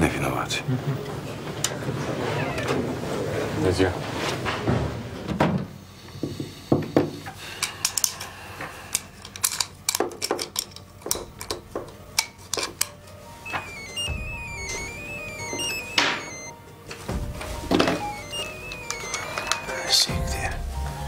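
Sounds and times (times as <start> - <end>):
stepping synth melody: 13.5 - 16.5, 18.0 - 20.0.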